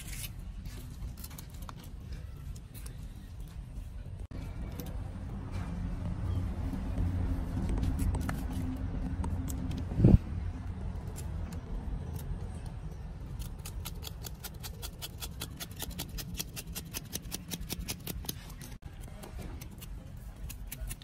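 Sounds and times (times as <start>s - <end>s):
knife cutting fruit hairs clicking: 13.2s - 18.7s.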